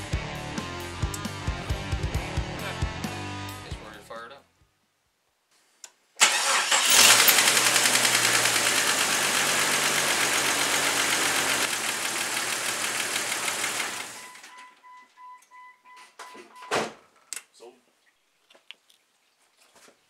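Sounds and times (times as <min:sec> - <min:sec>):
car engine starting and running: 0:06.2 - 0:14.5
faint pulsing beep: 0:14.2 - 0:16.7.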